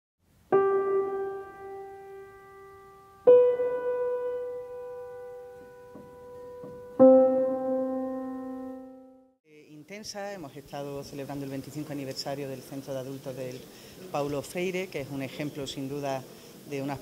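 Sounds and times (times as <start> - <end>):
slow piano-like keyboard notes: 0.4 - 9.4.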